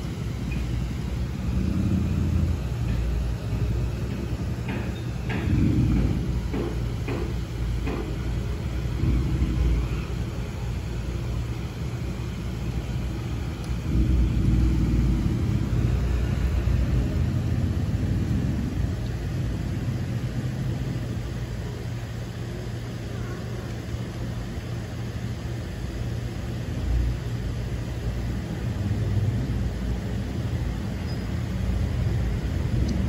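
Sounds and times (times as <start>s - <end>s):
street traffic rumble: 0.0s - 33.0s.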